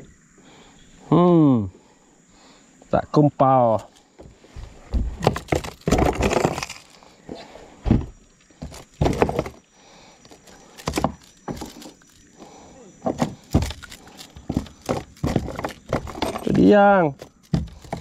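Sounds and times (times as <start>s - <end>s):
knocks and thuds on kayak deck: 4.2s - 6.7s, 7.8s - 9.6s, 10.8s - 11.9s, 13.0s - 18.0s.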